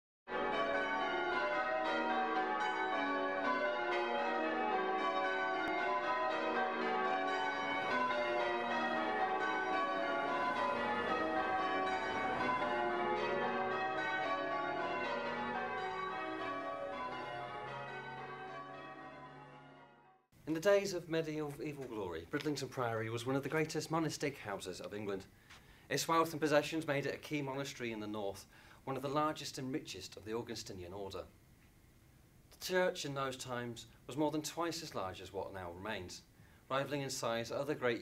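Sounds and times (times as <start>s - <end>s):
church bells ringing: 0.3s - 20.3s.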